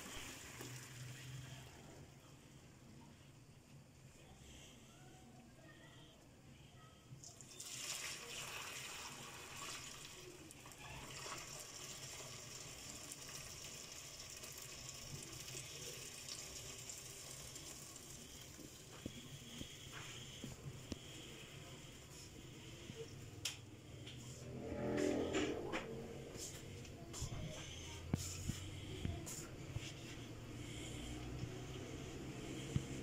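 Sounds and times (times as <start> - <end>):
water pouring into a colander: 0.0 - 1.8, 7.2 - 19.0.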